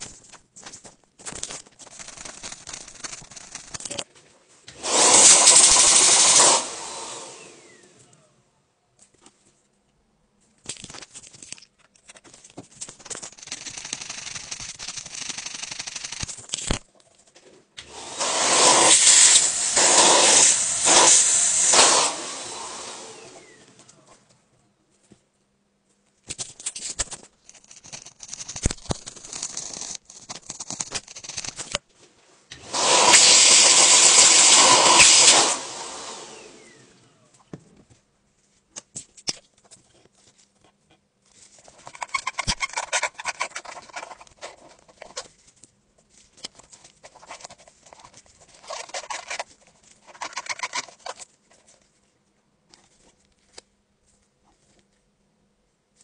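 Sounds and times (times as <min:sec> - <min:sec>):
cleaning tool scratching metal mesh: 0:01.8 - 0:04.0, 0:04.8 - 0:06.7, 0:13.0 - 0:16.4, 0:18.2 - 0:22.3, 0:27.5 - 0:31.7, 0:32.7 - 0:35.7, 0:41.7 - 0:45.2, 0:47.0 - 0:51.3
small motorised tool running: 0:04.8 - 0:07.9, 0:13.2 - 0:16.3, 0:32.6 - 0:37.1.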